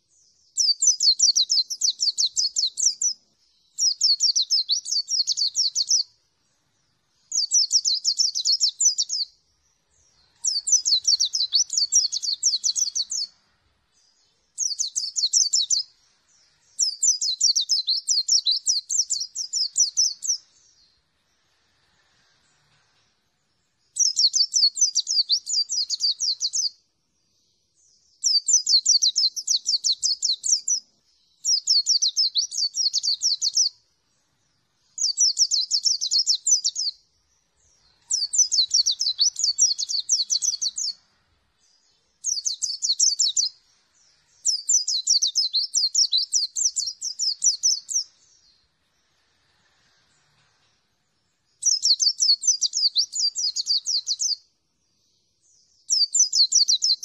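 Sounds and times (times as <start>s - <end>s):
bird twittering: 0.6s - 6.1s, 7.2s - 20.9s, 23.9s - 26.7s, 31.4s - 33.8s, 34.9s - 37.0s, 37.6s - 41.0s, 41.7s - 43.6s, 44.2s - 48.6s, 51.6s - 54.4s.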